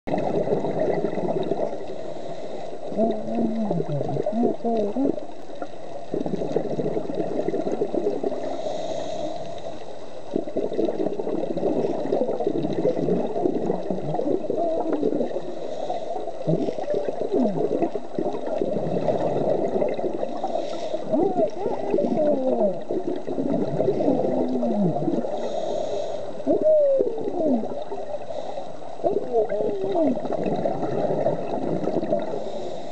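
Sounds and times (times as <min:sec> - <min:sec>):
underwater gurgling and bubbling: 0:00.1 - 0:32.9
regulator breathing hiss: 0:08.4 - 0:09.8, 0:15.5 - 0:16.3, 0:20.4 - 0:21.1, 0:25.3 - 0:26.4, 0:32.4 - 0:32.9.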